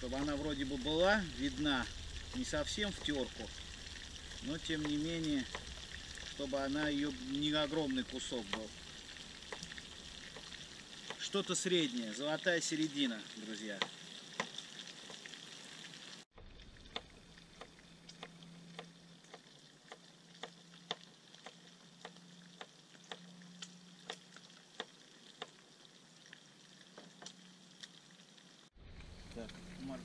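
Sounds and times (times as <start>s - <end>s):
meat sizzling faintly: 0.0s - 22.3s.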